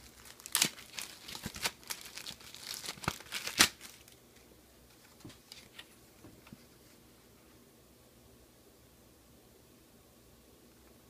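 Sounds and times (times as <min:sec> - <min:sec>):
plastic bag crinkling: 0:00.0 - 0:04.2.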